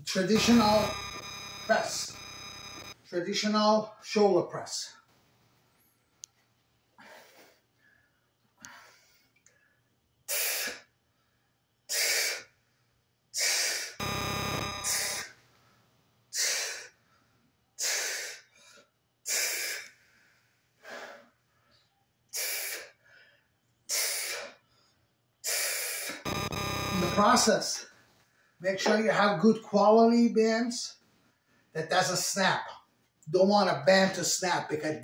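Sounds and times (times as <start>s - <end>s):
buzzy steady tone burst: 0.1s - 3.0s, 14.0s - 15.2s, 26.3s - 27.5s.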